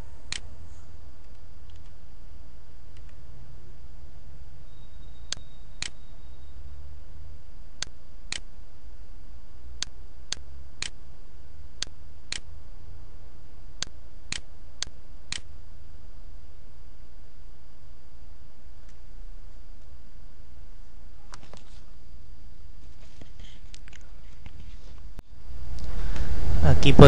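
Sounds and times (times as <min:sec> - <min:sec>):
low electrical hum: 0:00.0 - 0:27.0
computer mouse clicking: 0:13.8 - 0:15.5.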